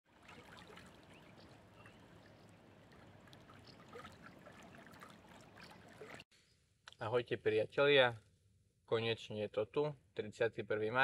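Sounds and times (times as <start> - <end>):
small waves lapping: 0.0 - 6.3.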